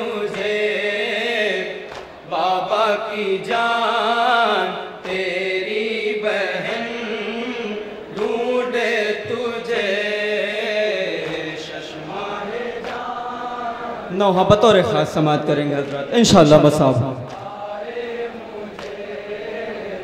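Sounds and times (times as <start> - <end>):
men chanting a lament: 0.0 - 20.0.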